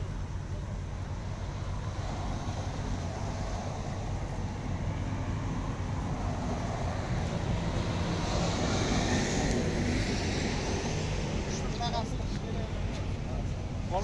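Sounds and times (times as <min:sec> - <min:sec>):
highway traffic rumble: 0:00.0 - 0:14.0.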